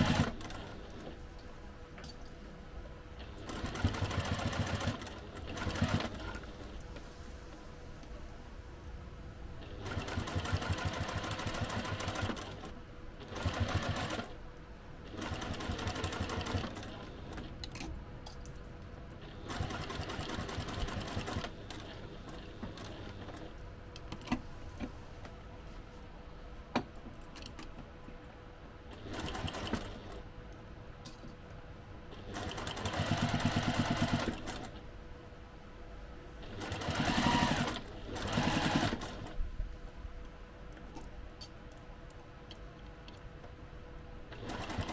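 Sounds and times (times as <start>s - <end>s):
sewing machine stitching: 0.0s - 1.2s, 3.2s - 6.7s, 9.6s - 14.4s, 15.0s - 17.5s, 19.2s - 23.5s, 28.9s - 30.2s, 32.1s - 34.8s, 36.4s - 39.4s, 44.3s - 44.9s.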